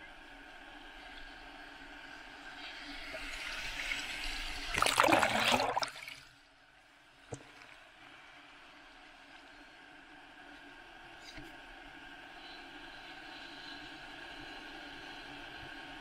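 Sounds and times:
whitewater hiss: 10.8 - 16.0.

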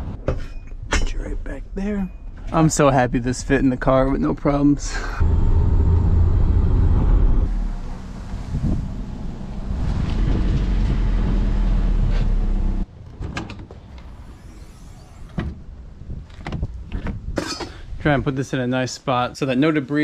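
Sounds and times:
car engine rumbling: 1.4 - 16.5.

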